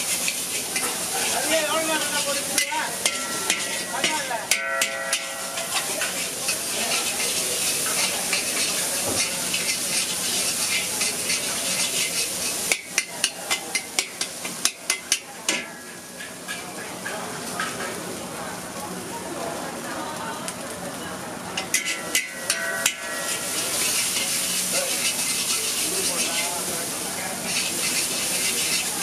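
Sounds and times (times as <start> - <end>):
metal spatula scraping a wok: 0.0 - 14.3, 21.6 - 29.0
noodles sizzling in a wok: 0.0 - 29.0
spatula knocking on a wok: 2.6 - 6.1.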